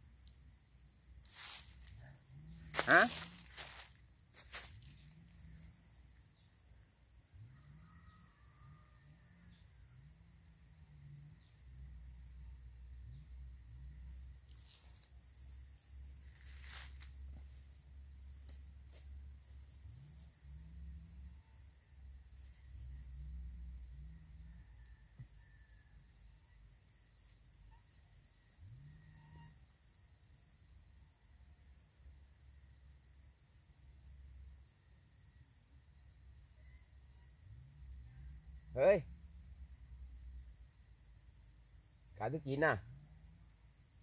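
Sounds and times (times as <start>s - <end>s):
insect high-pitched trill: 0.0s - 44.0s
crackling leaves or twigs: 1.2s - 1.9s, 2.7s - 5.2s, 16.2s - 17.2s.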